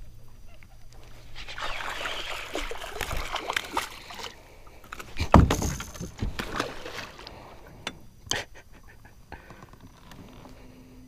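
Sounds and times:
water splashing from thrashing fish: 0:01.4 - 0:04.4, 0:05.3 - 0:07.4.

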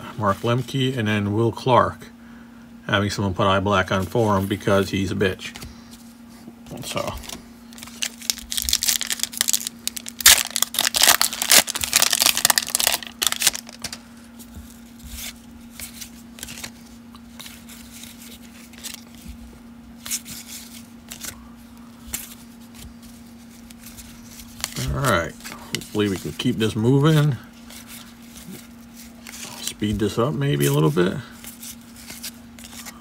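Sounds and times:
faint steady hum: 0:00.0 - 0:33.0
foil wrapper crinkling and tearing: 0:07.0 - 0:14.0, 0:14.8 - 0:19.2.

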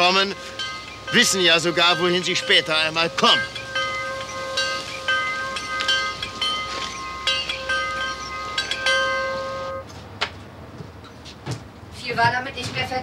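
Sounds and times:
metal chimes ringing: 0:00.0 - 0:09.9.

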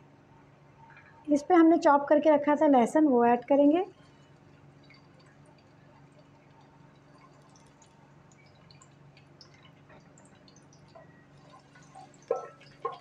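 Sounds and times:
low steady hum: 0:00.0 - 0:13.0
garlic crackling in oil: 0:03.9 - 0:13.0.

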